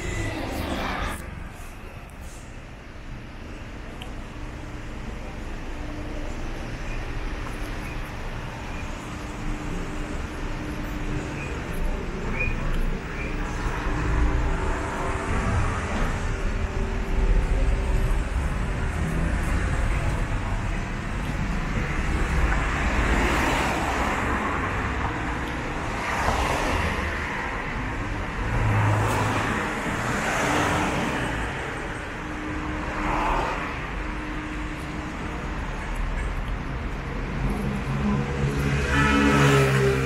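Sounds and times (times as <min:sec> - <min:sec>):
road traffic: 0:00.0 - 0:40.0
cars passing close by: 0:09.1 - 0:40.0.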